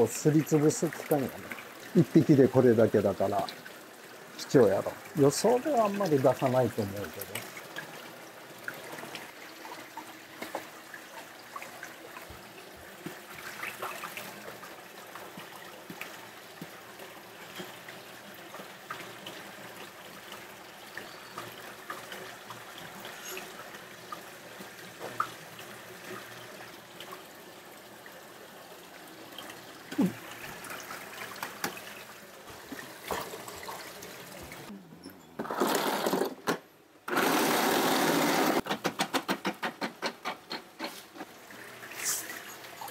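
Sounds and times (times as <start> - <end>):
water trickling: 0.0 - 35.2, 40.8 - 42.9
electric ice shaver grinding: 37.1 - 38.6
kitchen work clicks and knocks: 38.6 - 41.3.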